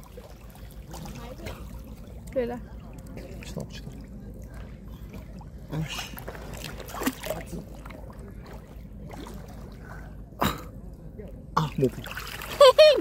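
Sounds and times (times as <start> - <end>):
water sloshing and splashing: 0.0 - 13.0
sharp splashes: 5.2 - 9.7, 11.7 - 13.0.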